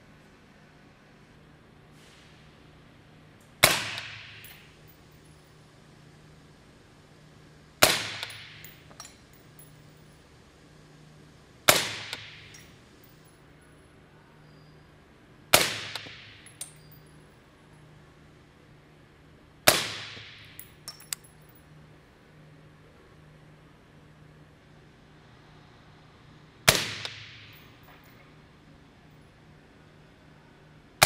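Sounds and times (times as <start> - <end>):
suppressed rifle shots: 3.6 - 4.5, 26.7 - 27.5.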